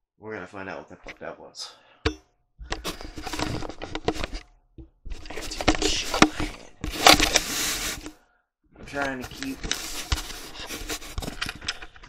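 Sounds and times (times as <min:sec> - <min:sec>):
camera handling clicks and knocks: 0:02.1 - 0:08.2
clothing rustling against camera: 0:02.6 - 0:08.2, 0:08.8 - 0:12.0.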